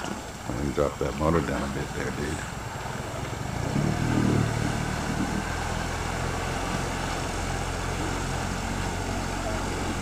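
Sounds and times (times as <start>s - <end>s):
outboard motor droning: 0.0s - 10.0s.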